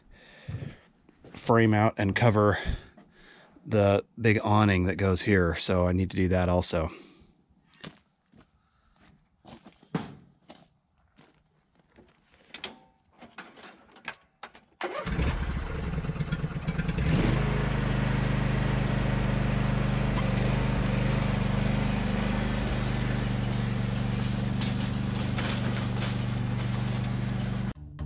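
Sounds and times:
small engine cranking and running: 14.8s - 27.8s.

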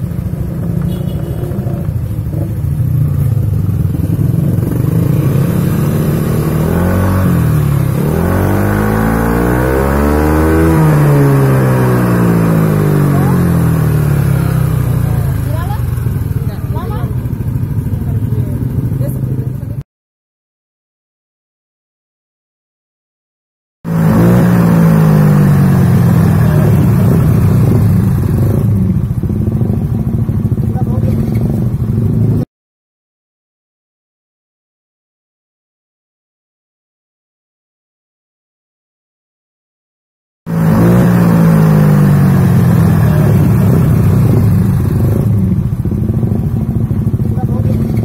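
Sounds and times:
scooter engine idling: 0.0s - 6.1s, 12.4s - 19.8s, 25.6s - 32.4s, 42.1s - 48.0s.

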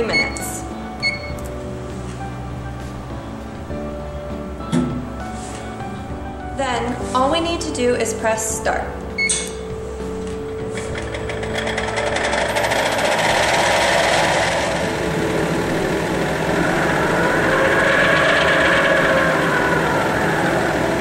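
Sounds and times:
mixer rapid ticking: 10.8s - 19.6s
mixer whirring: 10.8s - 21.0s.

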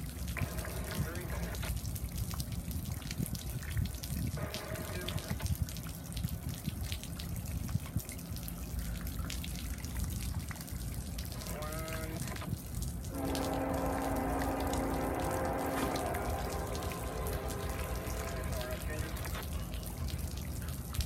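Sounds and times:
rain and wind on microphone: 0.0s - 21.0s
raindrop taps: 11.4s - 21.0s
brief pitched sound: 13.1s - 20.3s
rising pitched sound: 13.1s - 20.6s.

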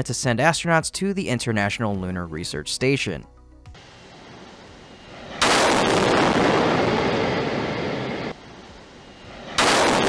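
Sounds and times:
distant rumbling explosion: 4.1s - 10.0s.

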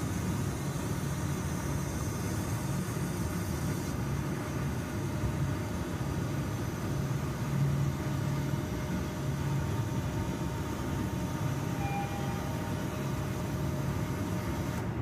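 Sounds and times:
faint short tone: 11.7s - 13.2s.

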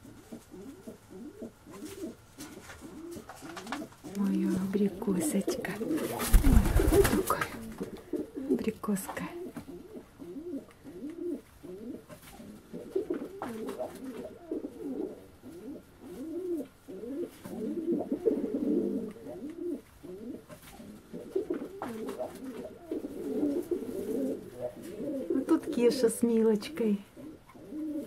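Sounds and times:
pigeons cooing: 0.0s - 28.0s.

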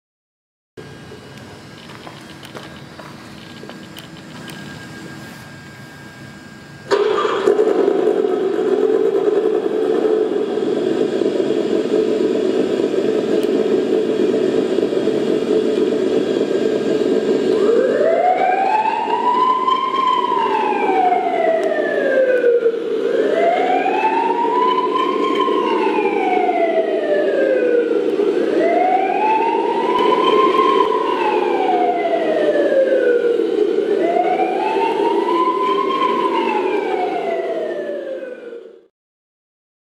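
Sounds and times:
steady hum: 0.8s - 38.9s
toy police siren wailing: 17.5s - 38.6s.

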